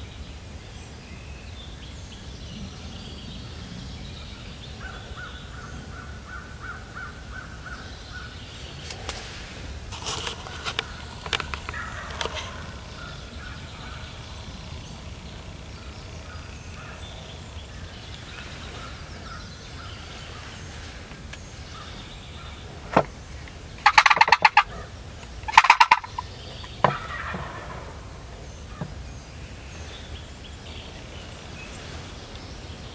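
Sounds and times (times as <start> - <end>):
turkey gobbling: 10.4 - 14.0, 23.8 - 24.9, 25.5 - 28.0.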